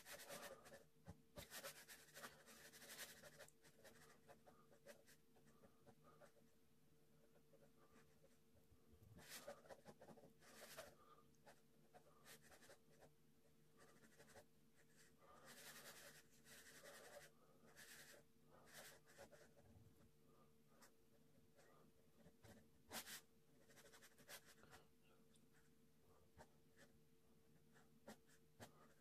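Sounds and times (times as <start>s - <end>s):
pen scratching on paper: 0.0s - 6.5s, 9.2s - 13.2s, 13.8s - 19.7s, 21.6s - 24.8s, 26.4s - 29.0s.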